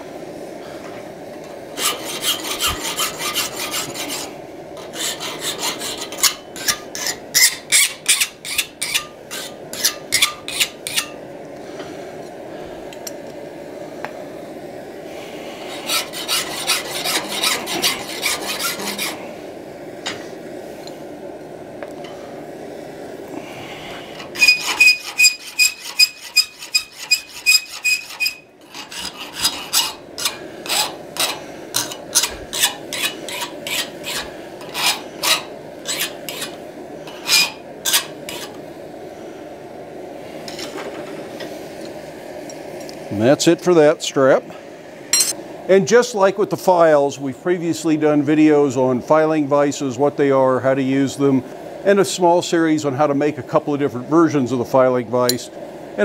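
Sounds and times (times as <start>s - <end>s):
file stroking steel: 1.8s - 11.2s, 15.6s - 19.2s, 24.1s - 38.6s
steel ringing: 24.2s - 36.6s, 45.1s - 45.4s.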